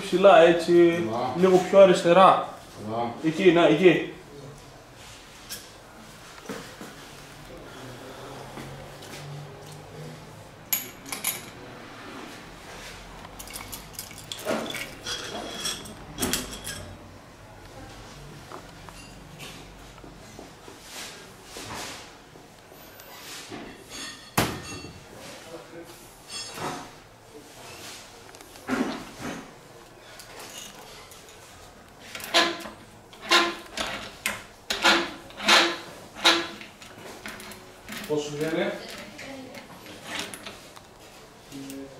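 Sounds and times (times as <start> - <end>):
metal parts clinking and rattling: 10.7 - 11.6, 13.4 - 16.9.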